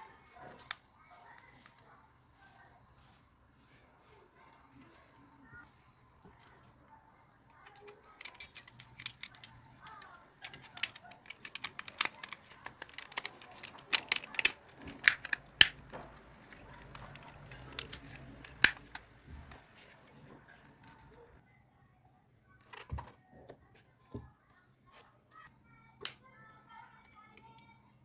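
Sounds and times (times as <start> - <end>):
plastic case clicking and snapping: 7.6 - 19.1.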